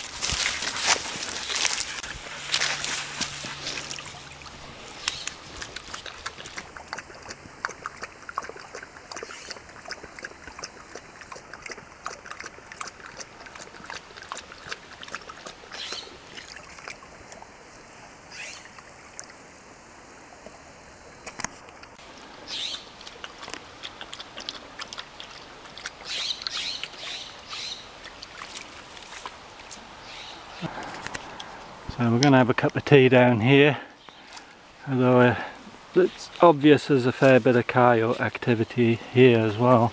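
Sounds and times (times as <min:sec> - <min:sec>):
splashing footsteps in water: 0:00.0 - 0:17.4, 0:23.0 - 0:29.8
trickling creek: 0:00.0 - 0:39.9.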